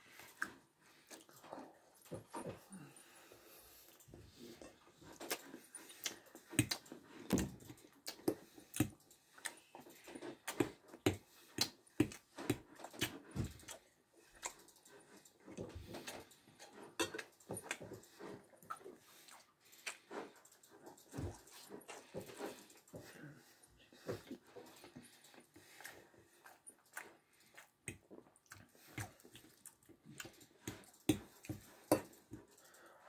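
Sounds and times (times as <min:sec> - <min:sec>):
person chewing with lip smacks: 0:05.1 - 0:16.0, 0:24.0 - 0:31.6.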